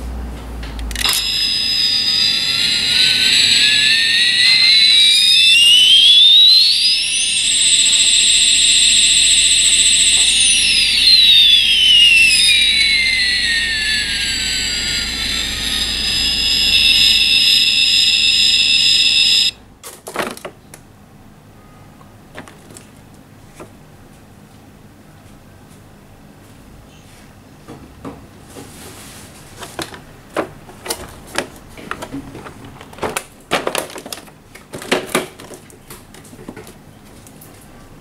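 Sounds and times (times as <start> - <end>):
toy jet engine sound effect: 0.9 - 19.6.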